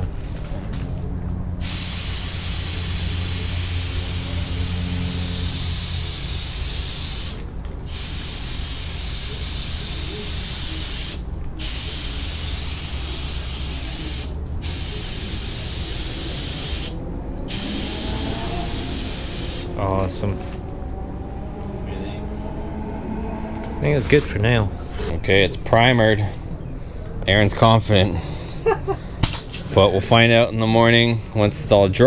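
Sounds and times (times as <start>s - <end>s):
spray gun hissing: 1.6s - 19.9s.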